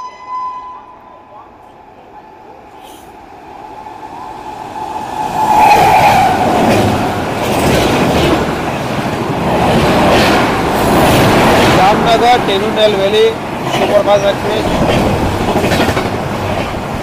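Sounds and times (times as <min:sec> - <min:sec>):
train passing at speed: 0:00.0 - 0:17.0
wheels clattering over rail joints: 0:06.5 - 0:17.0.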